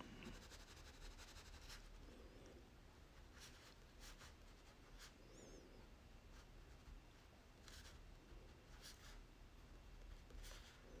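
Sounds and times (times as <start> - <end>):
crayon scratching on paper: 0.3 - 2.0.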